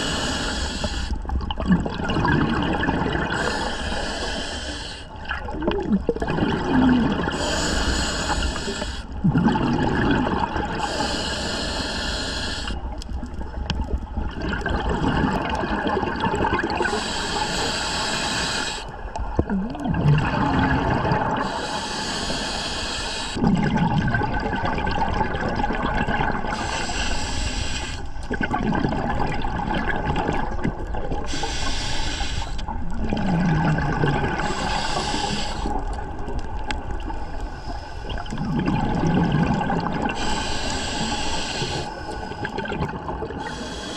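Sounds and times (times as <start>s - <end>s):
hissing regulator inhale: 0.0s - 1.2s, 3.4s - 5.2s, 7.3s - 9.2s, 10.8s - 12.8s, 16.8s - 18.9s, 21.4s - 23.4s, 26.5s - 28.3s, 31.2s - 32.7s, 34.3s - 36.0s, 37.0s - 38.3s, 40.1s - 42.7s, 43.4s - 43.9s
gurgling exhaled bubbles: 0.0s - 4.4s, 5.1s - 11.2s, 12.8s - 17.4s, 18.9s - 21.8s, 23.4s - 27.5s, 28.2s - 43.8s.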